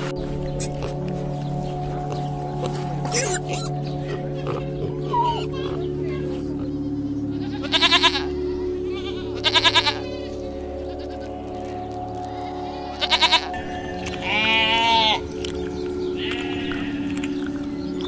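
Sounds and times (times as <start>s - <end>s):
background music: 0.0s - 18.0s
sheep bleating: 4.4s - 15.2s, 16.2s - 17.0s
goat kid bleating: 7.3s - 11.6s, 12.2s - 13.6s, 14.2s - 15.2s.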